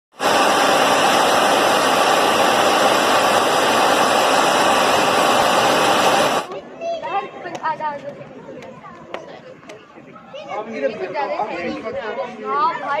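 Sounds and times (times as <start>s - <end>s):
jet aircraft engine roar: 0.1s - 6.5s.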